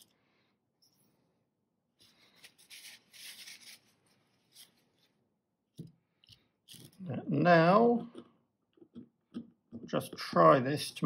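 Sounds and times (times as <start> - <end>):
hands rubbing metal parts: 2.0 - 5.2.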